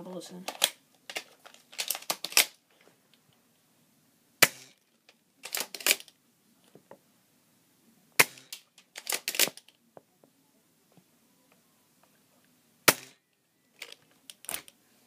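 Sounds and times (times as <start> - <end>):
clicks and rattles: 0.5 - 2.6, 5.0 - 6.1
bb gun shots: 4.4 - 4.8, 8.2 - 9.6, 12.8 - 13.2.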